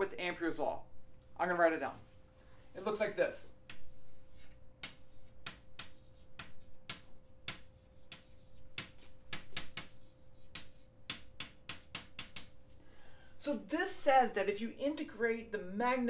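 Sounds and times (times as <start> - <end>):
chalk writing on blackboard: 3.6 - 12.8.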